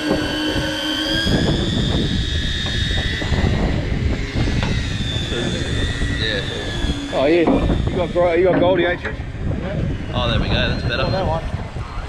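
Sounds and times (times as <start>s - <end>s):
electric fishing reels whining: 0.0s - 12.0s
low rumble: 0.0s - 12.0s.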